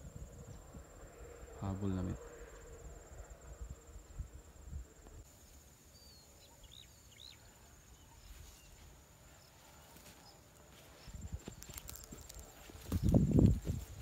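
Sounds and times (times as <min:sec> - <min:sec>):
bird chirps: 0:05.9 - 0:08.8
high-pitched insect trill: 0:10.2 - 0:14.0.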